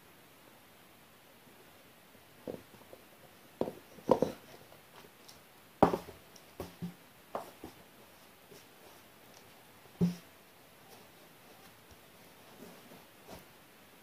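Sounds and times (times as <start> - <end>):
sneaker knocking on wooden floor: 5.8 - 7.0.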